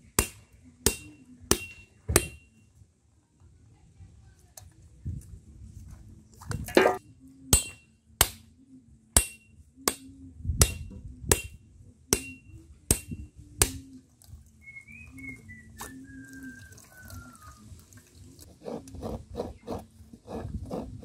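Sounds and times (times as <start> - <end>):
machete striking coconut: 0.2 - 2.5.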